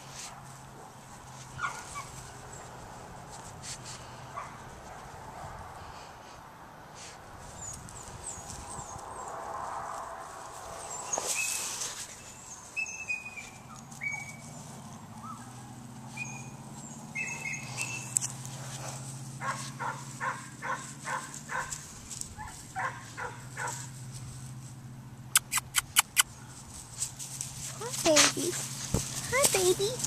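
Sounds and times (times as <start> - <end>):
birds chirping: 10.7 - 18.5.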